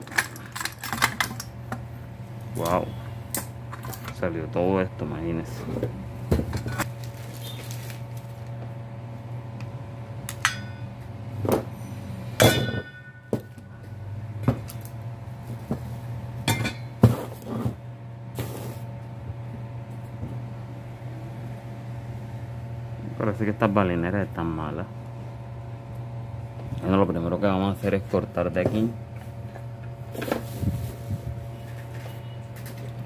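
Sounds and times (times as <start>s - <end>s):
metal parts knocking and clinking: 0.0s - 1.5s
steady low hum: 0.0s - 33.0s.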